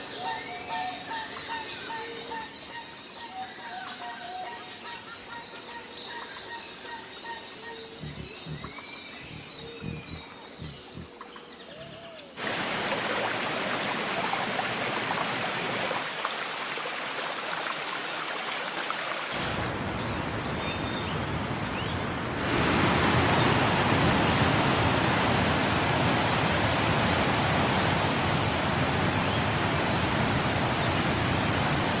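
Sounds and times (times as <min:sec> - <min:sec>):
faint bird chirps: 0:00.1 - 0:12.4.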